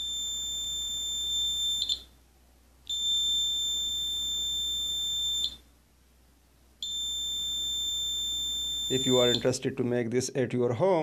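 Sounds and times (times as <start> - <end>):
high-pitched buzzer alarm tone: 0.0 - 2.1, 2.9 - 5.6, 6.8 - 9.5.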